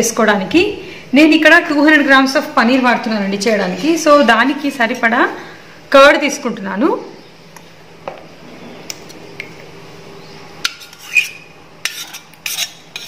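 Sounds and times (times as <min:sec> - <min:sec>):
metal spoon scraping steel bowl: 0:10.6 - 0:13.0.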